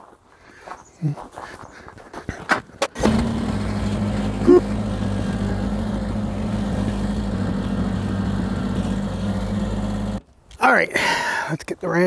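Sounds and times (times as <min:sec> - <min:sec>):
tractor diesel engine running: 0:02.8 - 0:10.2.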